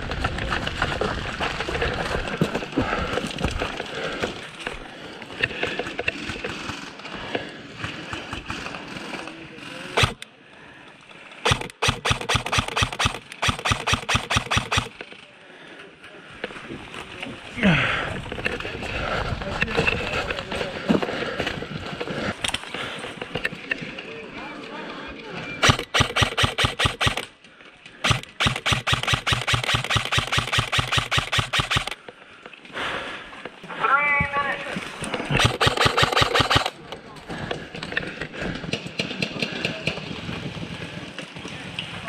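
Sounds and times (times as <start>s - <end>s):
airsoft rifle rapid shots: 10.0s - 10.2s, 11.4s - 15.0s, 25.6s - 27.3s, 28.0s - 32.0s, 35.3s - 36.8s.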